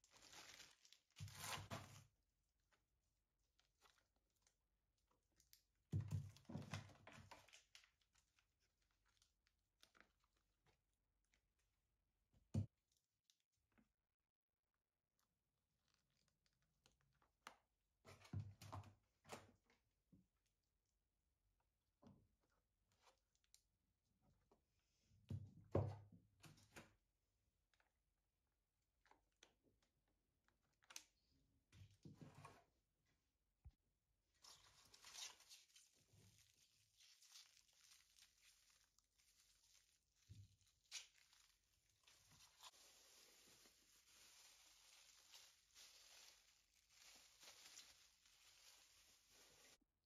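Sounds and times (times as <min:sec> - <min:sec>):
plastic bags rustling: 0:00.0 - 0:02.0, 0:34.6 - 0:49.8
plastic crackles and knocks: 0:05.9 - 0:08.0.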